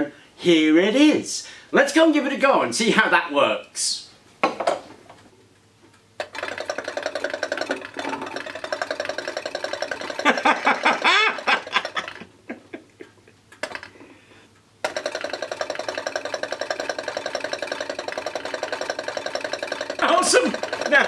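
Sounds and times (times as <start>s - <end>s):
engine mechanical ticking: 14.8s - 21.0s.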